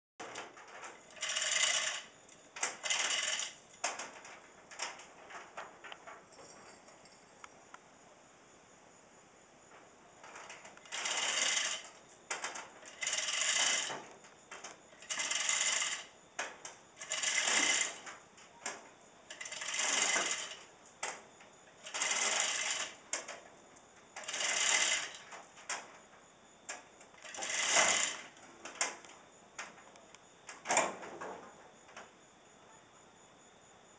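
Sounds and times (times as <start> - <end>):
ratchet clicks: 0.2 - 4.1, 10.8 - 16.1, 17.0 - 18.2, 19.3 - 21.2, 21.8 - 23.4, 24.2 - 25.3, 27.2 - 28.9
chain hoist clattering: 0.2 - 4.3, 10.4 - 14.1, 14.9 - 16.2, 17.0 - 18.2, 19.3 - 20.7, 21.8 - 23.3, 24.2 - 25.4, 27.2 - 28.4
crickets chirping: 0.2 - 33.9.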